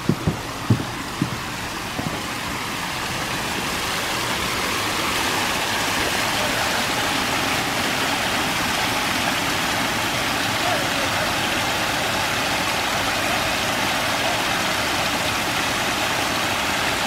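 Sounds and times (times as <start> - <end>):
soft thumps: 0.0 - 2.3
waterfall splashing onto gravel: 0.0 - 17.0.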